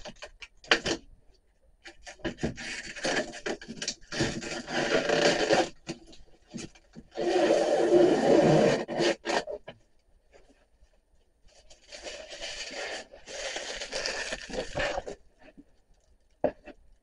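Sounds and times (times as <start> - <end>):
scraping and rustling handling: 10.3 - 17.0.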